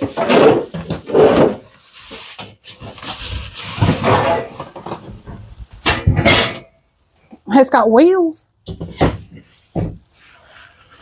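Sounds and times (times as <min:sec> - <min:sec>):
plastic and cardboard rustling: 0:00.0 - 0:06.4, 0:08.7 - 0:11.0.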